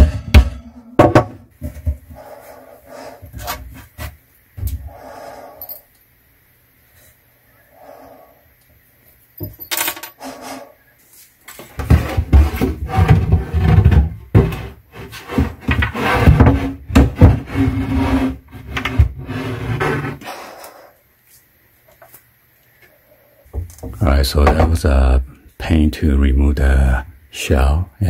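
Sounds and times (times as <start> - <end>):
wooden shelf scraping and rubbing: 1.0 - 4.2, 11.6 - 20.4.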